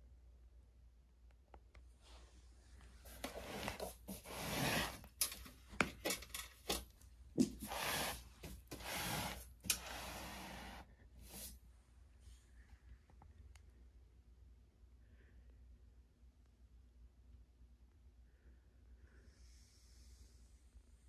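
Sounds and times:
rubbing and scraping: 0:03.0 - 0:11.5.

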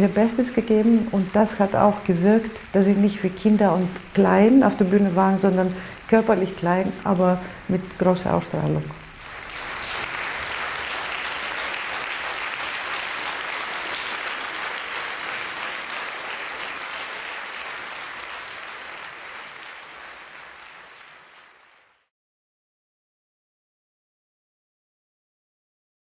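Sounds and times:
audience applauding: 0:09.1 - 0:22.1.

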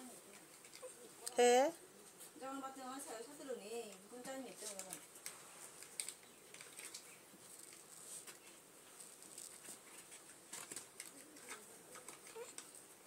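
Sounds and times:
handling clicks and rustles: 0:03.8 - 0:13.0.

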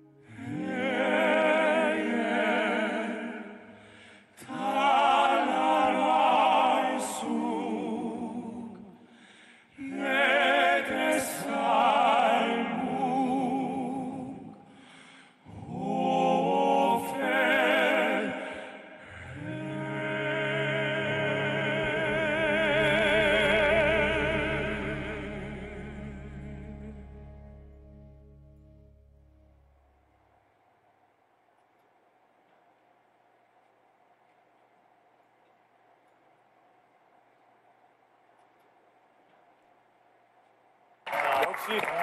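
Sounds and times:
male vocal quartet singing: 0:00.2 - 0:27.6
low bass: 0:20.8 - 0:30.2.

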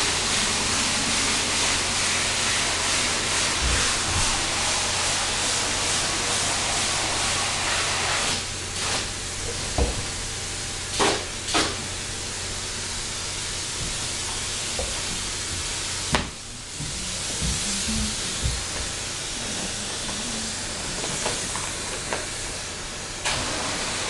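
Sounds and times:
spray foam gun hissing: 0:00.0 - 0:09.2, 0:09.8 - 0:24.0
steady low hum: 0:08.4 - 0:23.3.

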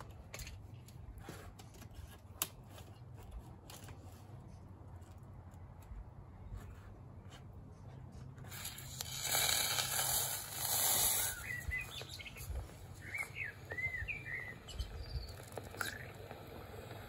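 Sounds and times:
hiss of boiling water and steam: 0:08.5 - 0:12.1, 0:13.6 - 0:17.0
bird chirping: 0:11.0 - 0:16.5.

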